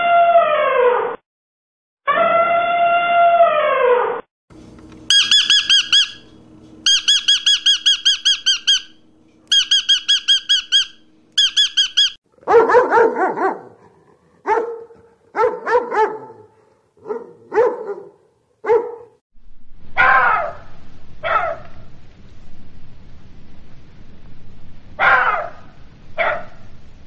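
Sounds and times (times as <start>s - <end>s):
bird chirping: 5.1s - 12.2s
dog barking: 12.4s - 19.2s, 20.0s - 21.8s, 25.0s - 26.6s.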